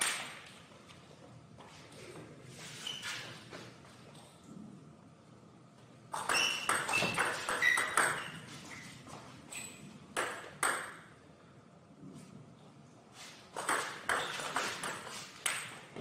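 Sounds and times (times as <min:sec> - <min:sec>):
table tennis ball clicks and pings: 0:06.2 - 0:08.4, 0:10.2 - 0:11.1.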